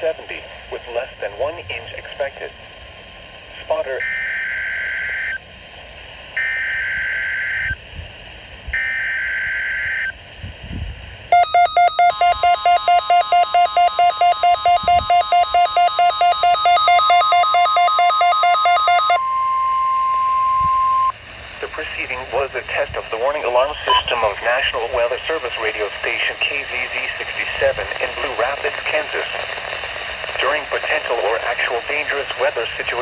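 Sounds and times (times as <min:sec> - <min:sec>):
steady warning alarm tone: 0:11.3 - 0:21.1, 0:23.8 - 0:24.2
digital data bursts: 0:11.4 - 0:19.2, 0:23.6 - 0:24.3
rapid alert beeping: 0:11.4 - 0:19.2, 0:23.8 - 0:24.2.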